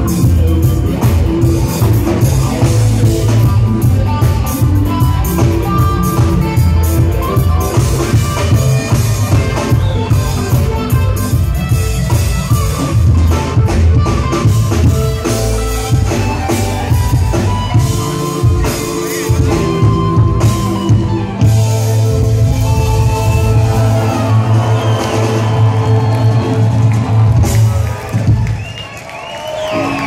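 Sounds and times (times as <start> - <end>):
live band playing amplified music: 0.0 - 30.0.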